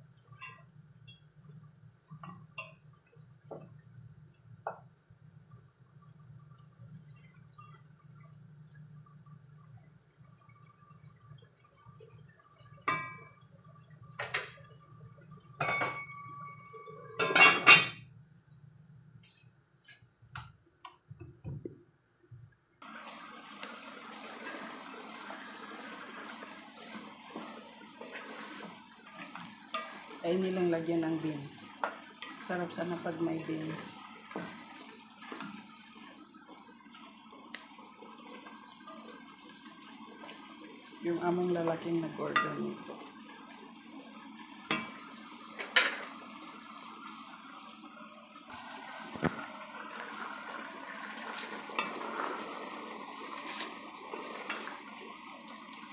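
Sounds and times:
food simmering bubbling hiss: 0.0 - 17.2, 22.8 - 55.9
cookware clinking and knocking: 0.4 - 1.3, 12.8 - 13.4, 15.6 - 18.1, 45.6 - 46.1
wooden spoon stirring: 26.8 - 36.2.

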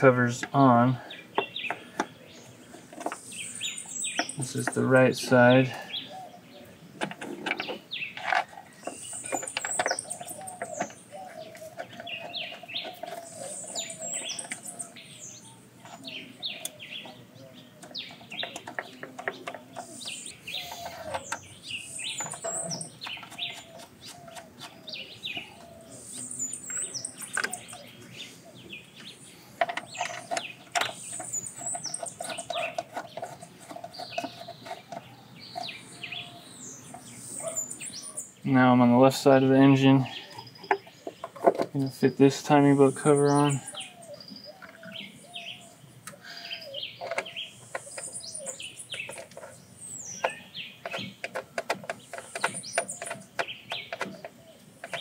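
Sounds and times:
birds chirping and singing: 0.0 - 55.0.

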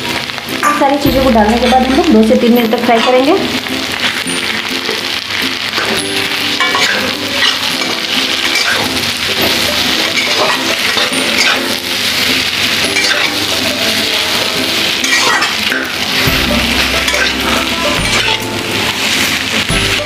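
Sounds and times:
oil frying hiss: 0.0 - 20.0
spatula scraping metal pan: 5.8 - 13.5, 15.0 - 19.3.

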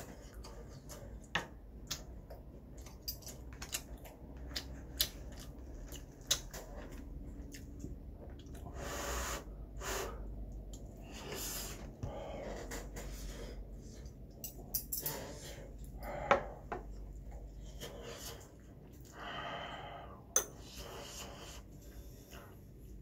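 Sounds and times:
chewing: 0.0 - 8.7.

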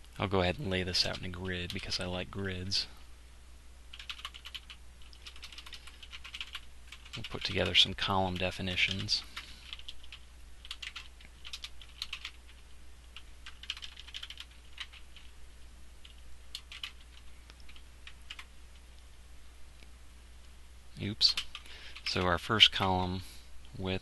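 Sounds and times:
steady low hum: 0.0 - 24.0
keyboard typing: 3.9 - 15.3, 16.0 - 18.5, 21.3 - 22.3.

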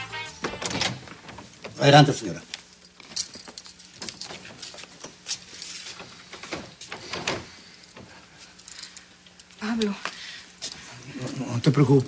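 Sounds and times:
door being handled: 0.4 - 1.8.

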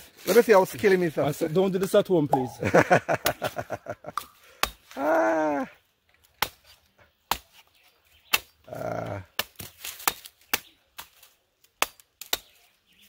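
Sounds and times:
machete chopping coconut: 4.1 - 4.9, 6.4 - 7.6, 8.2 - 8.6, 9.3 - 12.6.

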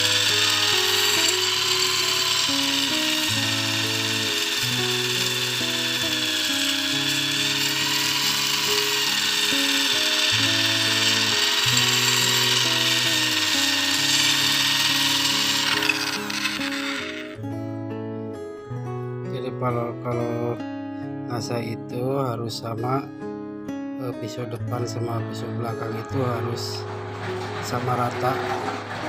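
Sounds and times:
drill grinding a blade: 0.0 - 17.4
background music: 0.0 - 29.0.

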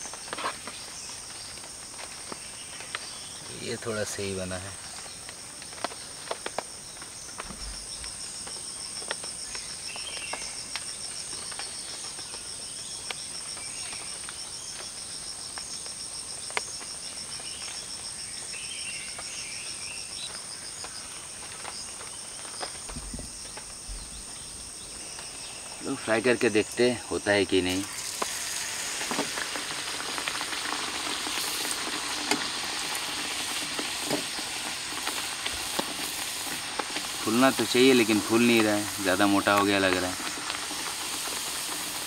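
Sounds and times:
insects whining and trilling: 0.0 - 42.0.

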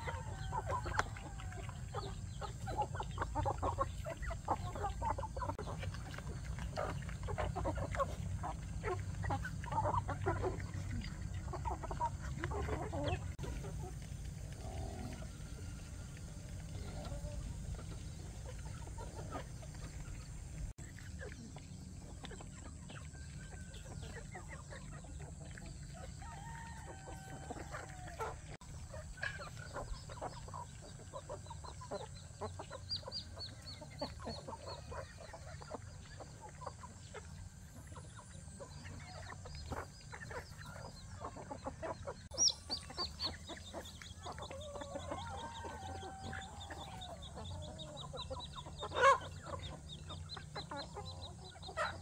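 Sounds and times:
chickens clucking: 0.0 - 52.0
rooster crowing: 26.2 - 28.4.

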